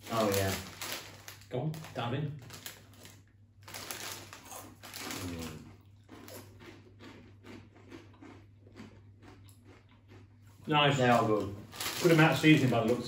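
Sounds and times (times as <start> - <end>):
plastic packet crinkling: 0.0 - 5.6, 11.0 - 13.0
crisps being chewed: 0.0 - 13.0.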